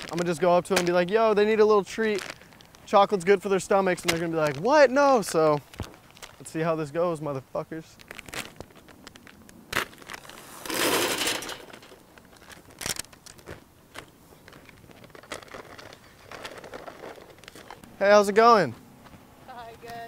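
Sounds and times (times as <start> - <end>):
snack packet crinkling: 1.8 - 3.0, 5.3 - 6.6, 7.8 - 17.8.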